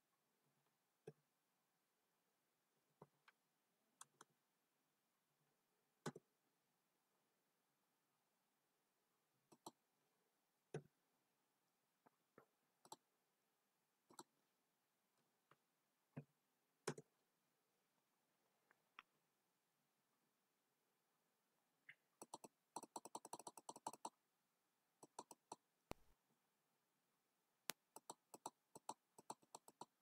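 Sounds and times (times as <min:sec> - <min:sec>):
mouse and keyboard clicks: 0:04.0 - 0:04.3, 0:09.5 - 0:09.8, 0:12.8 - 0:13.1, 0:14.1 - 0:14.3, 0:21.9 - 0:24.2, 0:25.0 - 0:26.1, 0:27.7 - 0:30.0.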